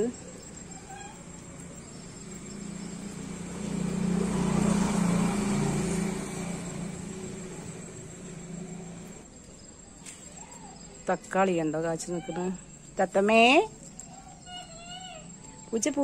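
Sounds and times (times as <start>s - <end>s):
vehicle passing by: 0.0s - 9.4s.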